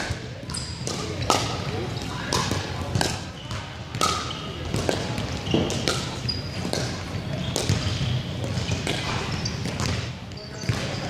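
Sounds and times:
paddles hitting plastic ball: 0.8s - 1.7s, 2.3s - 3.3s, 3.9s - 10.0s.

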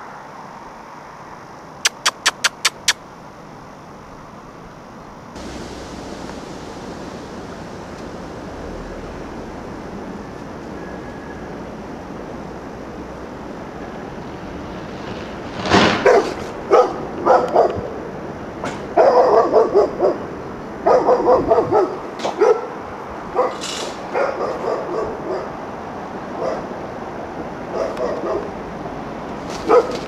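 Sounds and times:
steady background hiss: 3.0s - 15.4s
dog barking: 16.0s - 17.9s, 18.9s - 25.6s, 26.4s - 26.7s, 27.7s - 28.6s, 29.6s - 30.0s.

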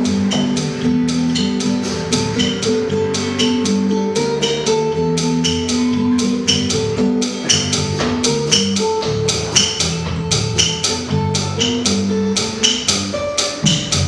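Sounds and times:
held guitar notes: 0.0s - 14.0s
percussive clicks: 6.4s - 14.0s.

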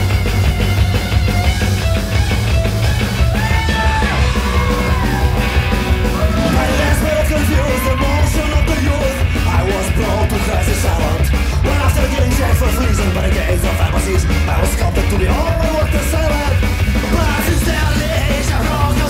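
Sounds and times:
loud rock music: 0.0s - 19.0s
person singing: 3.3s - 19.0s.

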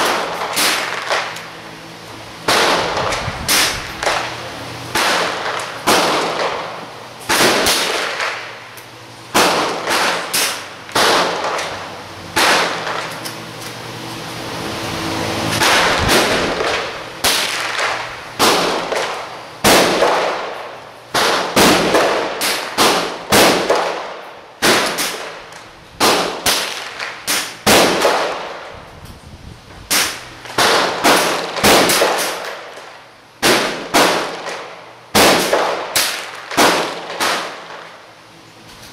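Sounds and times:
gunshots with echo: 2.5s - 4.3s.

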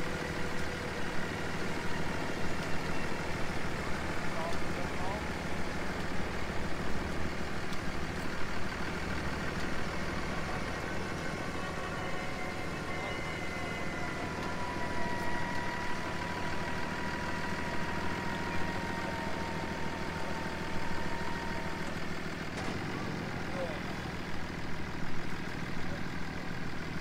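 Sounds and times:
truck engines running under load: 0.0s - 27.0s
thin whine: 9.8s - 23.0s.

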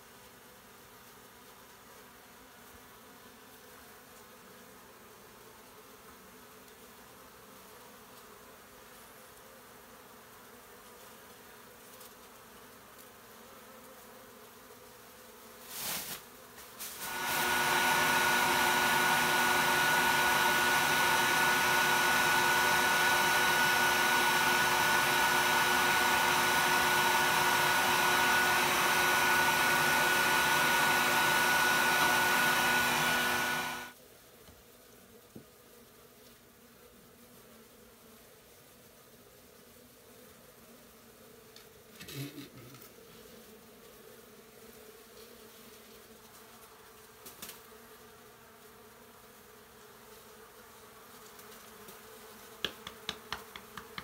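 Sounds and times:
bees buzzing faintly: 0.0s - 54.0s
bee vacuum whining: 16.8s - 34.0s, 51.3s - 54.0s.

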